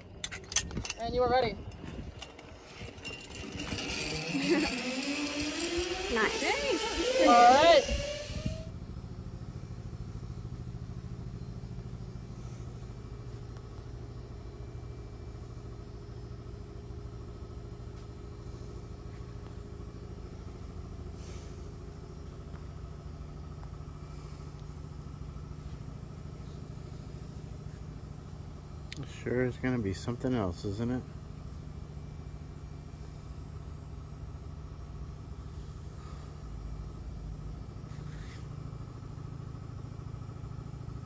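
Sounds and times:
car engine idling: 0:08.7 - 0:41.0.

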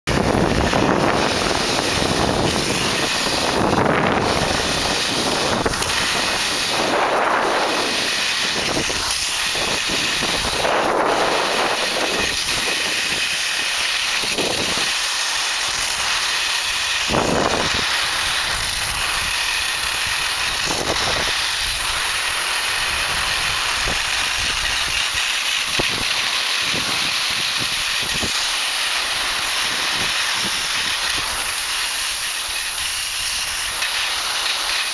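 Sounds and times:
wind on microphone: 0:00.1 - 0:28.5, 0:29.2 - 0:31.6
skis sliding over snow: 0:00.1 - 0:34.9.

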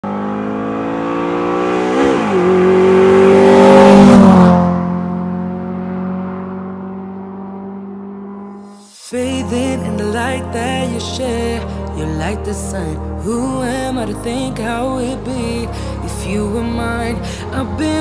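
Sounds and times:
car driving past: 0:00.1 - 0:08.8.

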